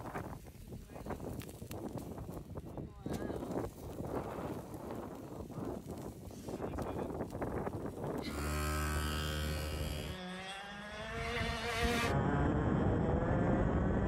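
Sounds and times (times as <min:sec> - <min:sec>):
go-kart engine revving: 0:08.2 - 0:14.0.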